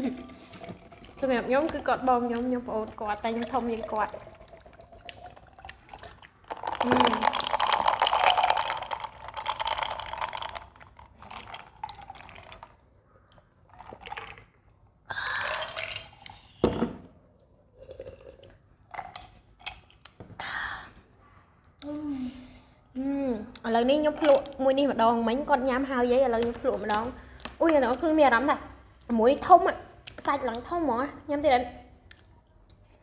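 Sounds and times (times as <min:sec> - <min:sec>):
soda fizzing over ice: 0:00.1 - 0:10.9
soda pouring from can: 0:00.3 - 0:12.7.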